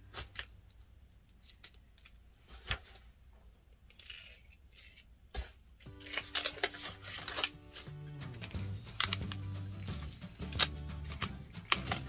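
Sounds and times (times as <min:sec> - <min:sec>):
packaging rustling and clicking: 0:05.8 - 0:12.0.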